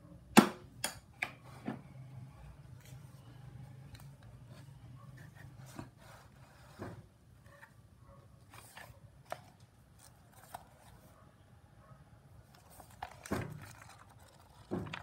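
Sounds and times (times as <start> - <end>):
paper rustling: 8.4 - 11.1, 12.4 - 15.0.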